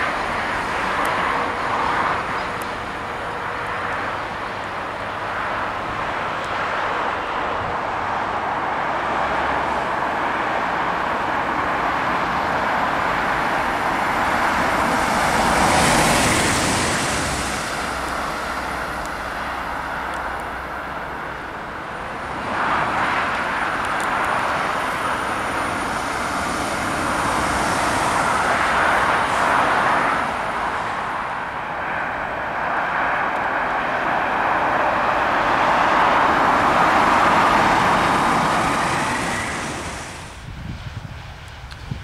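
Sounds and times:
train rushing on rails: 0.0 - 42.0.

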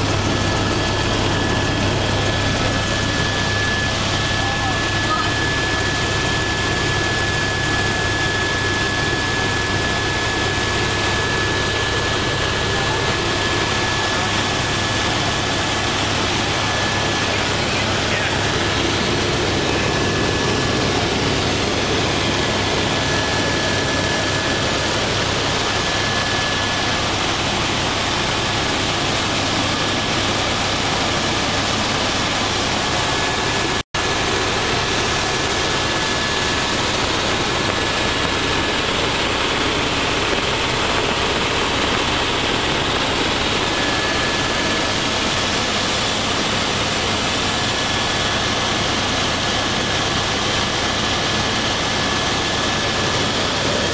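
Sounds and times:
high whine: 0.0 - 30.9
helicopter engine and rotor noise: 0.0 - 53.9.

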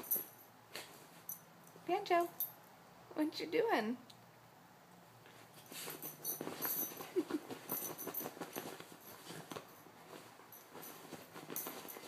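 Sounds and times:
dog paws scratching fabric: 5.3 - 12.0.

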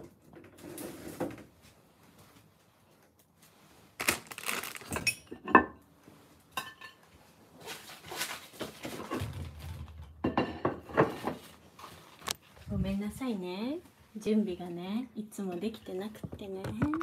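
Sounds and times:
kitchenware clattering and clinking: 6.5 - 7.1, 8.8 - 11.5.

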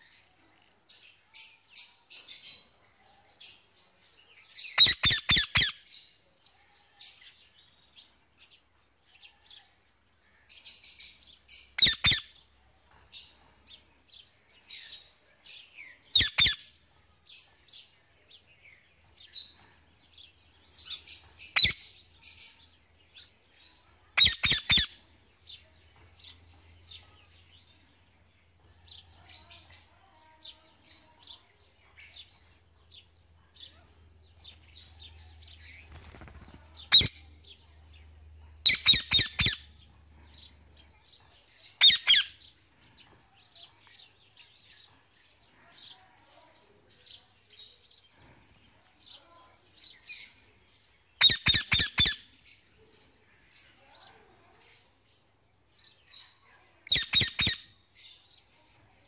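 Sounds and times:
soft bird chirping: 0.0 - 59.0
parakeet sharp calls: 4.8 - 5.8, 11.8 - 12.3, 16.2 - 16.6, 24.2 - 24.9, 38.7 - 39.7, 41.8 - 42.3, 51.2 - 52.2, 56.9 - 57.7.

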